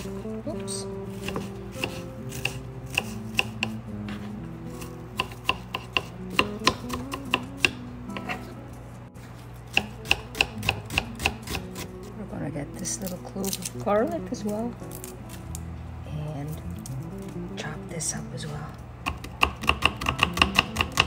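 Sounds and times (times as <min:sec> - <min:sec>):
soft background music: 0:00.0 - 0:21.0
knife chopping on wooden board: 0:01.2 - 0:04.2, 0:05.2 - 0:08.4, 0:09.7 - 0:11.9, 0:19.1 - 0:21.0.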